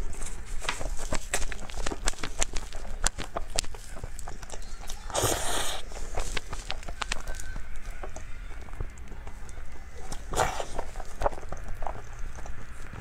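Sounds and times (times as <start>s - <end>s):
wet mouth eating sounds: 0.0s - 13.0s
loud slurp: 1.6s - 7.3s, 10.0s - 13.0s.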